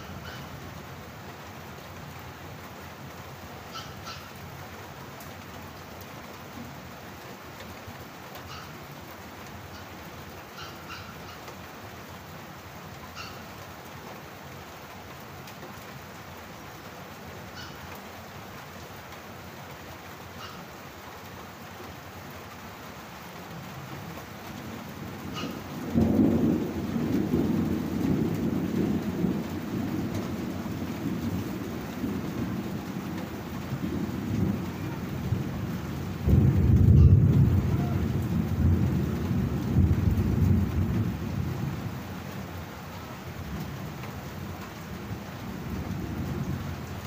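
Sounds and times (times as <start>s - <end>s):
steady rain: 0.0s - 47.0s
thunder rumbling: 24.7s - 42.2s.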